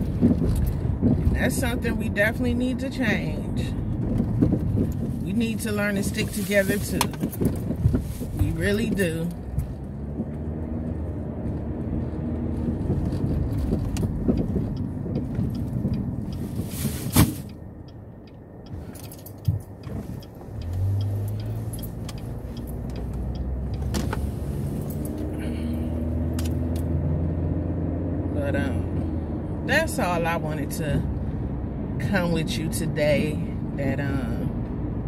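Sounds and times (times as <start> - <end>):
engine and road rumble: 0.0 - 35.0.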